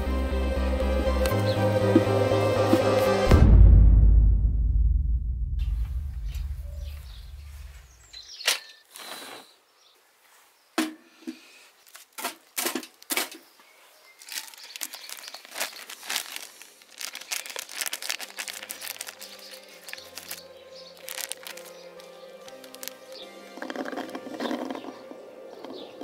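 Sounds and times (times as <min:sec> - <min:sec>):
deep boom: 0:03.2 - 0:07.8
plastic bag crinkling: 0:11.8 - 0:13.4, 0:14.2 - 0:24.8
scissors cutting plastic: 0:14.2 - 0:20.4, 0:21.0 - 0:24.8.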